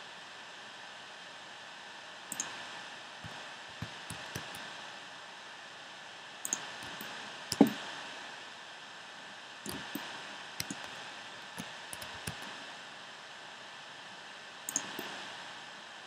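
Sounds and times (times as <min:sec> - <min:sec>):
steady hiss: 0:00.0 - 0:16.0
mouse and keyboard clicks: 0:03.2 - 0:04.6, 0:06.5 - 0:07.8, 0:09.7 - 0:11.0, 0:11.6 - 0:12.5, 0:14.7 - 0:15.1.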